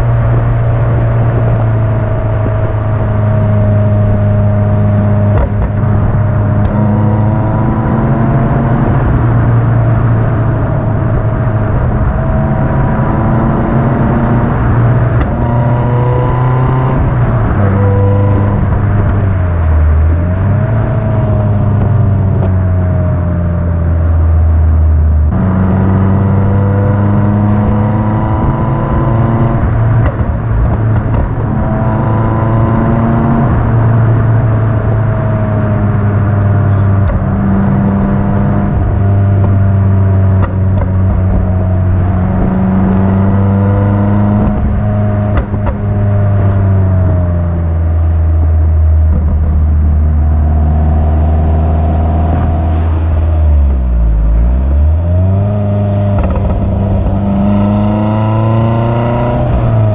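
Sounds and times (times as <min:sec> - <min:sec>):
car engine and exhaust accelerating: 0:00.0 - 0:59.9.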